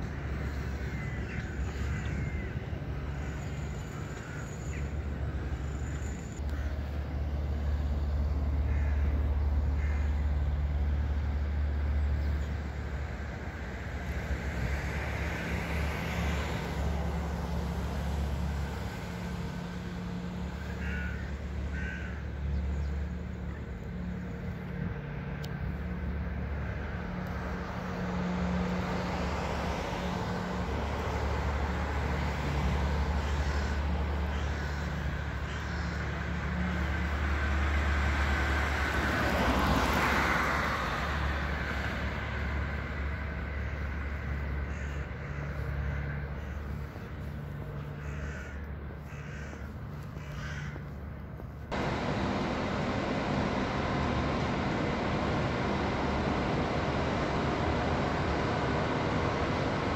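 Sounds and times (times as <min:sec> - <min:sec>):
crows cawing: 0:00.0 - 0:07.0, 0:08.4 - 0:10.7, 0:20.4 - 0:23.7, 0:26.4 - 0:27.0, 0:31.0 - 0:37.7, 0:41.4 - 0:51.2
low traffic hum: 0:00.0 - 0:59.9.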